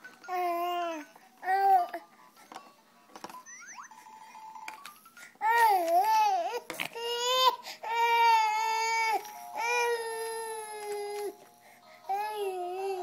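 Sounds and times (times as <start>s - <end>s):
baby crying: 5.4s - 11.4s, 12.1s - 13.0s.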